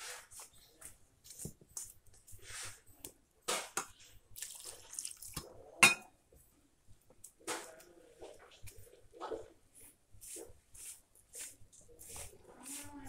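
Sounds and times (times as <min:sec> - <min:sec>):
batter mixed by hand squelching: 0:00.0 - 0:05.8, 0:07.4 - 0:13.0
sharp clink against steel bowl: 0:05.8 - 0:06.1.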